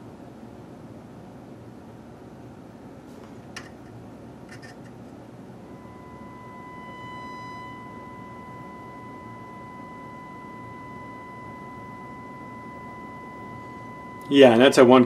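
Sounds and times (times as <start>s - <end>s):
sine test tone: 5.6s - 15.0s.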